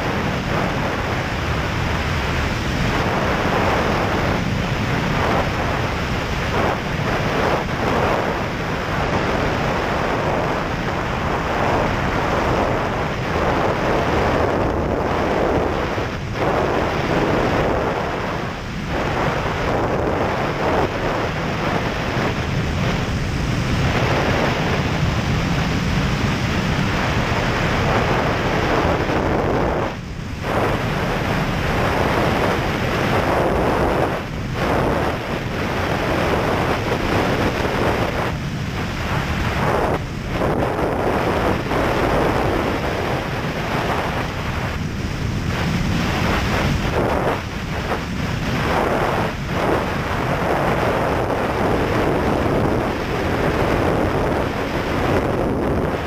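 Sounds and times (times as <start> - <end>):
aircraft engine and propeller: 0.0 - 56.0
wind buffeting microphone: 0.0 - 56.0.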